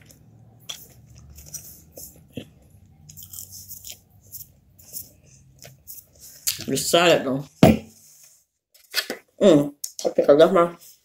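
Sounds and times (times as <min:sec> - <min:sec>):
person chewing crunchy food: 0:00.0 - 0:06.6.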